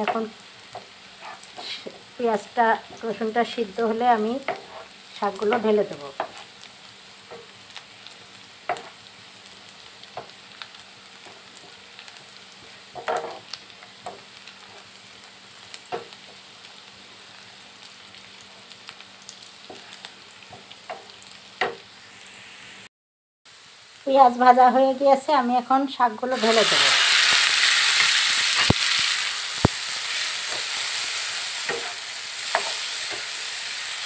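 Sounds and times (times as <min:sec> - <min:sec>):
food sizzling in hot oil: 0:00.0 - 0:22.9, 0:23.5 - 0:34.0
wooden spoon scraping a pan: 0:00.8 - 0:02.0, 0:04.4 - 0:06.5, 0:12.6 - 0:14.9, 0:30.0 - 0:33.4.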